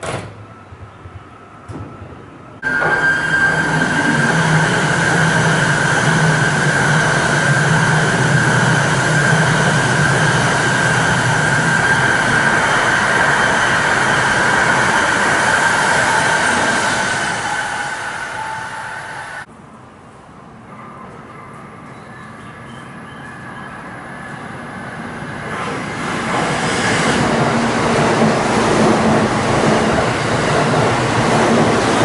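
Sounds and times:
train rushing past: 1.6s - 19.5s, 20.7s - 32.0s
high tone: 2.6s - 5.4s.

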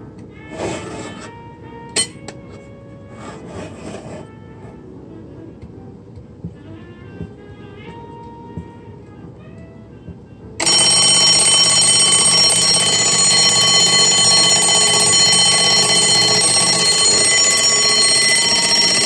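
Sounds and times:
alarm clock bell ringing: 10.6s - 19.0s.

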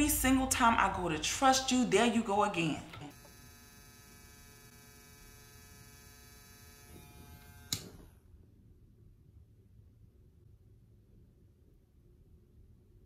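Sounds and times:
electric nail drill whining: 3.1s - 8.2s.

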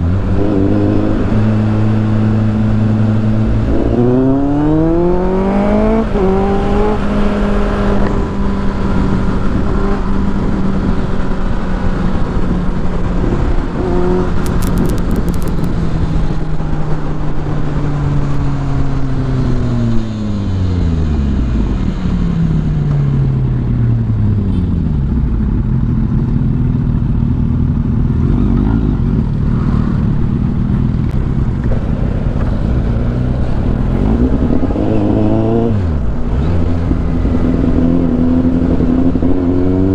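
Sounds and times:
motorcycle engine: 0.0s - 39.9s
wind rushing: 29.4s - 39.9s.

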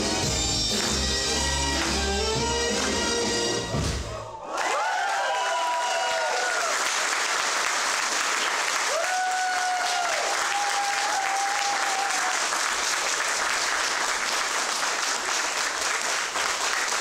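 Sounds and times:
audience applauding: 0.3s - 3.4s, 4.4s - 17.0s
long high cheer: 4.1s - 7.2s, 8.7s - 12.8s.

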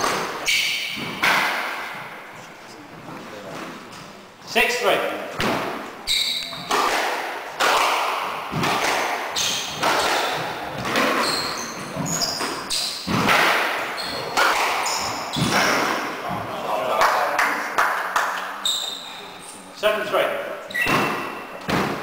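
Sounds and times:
squash ball cracking off rackets: 0.0s - 2.2s, 5.4s - 16.2s
shoes squeaking on wooden floor: 5.4s - 6.9s, 8.5s - 13.2s, 13.8s - 16.5s, 18.6s - 19.7s, 20.6s - 22.0s.

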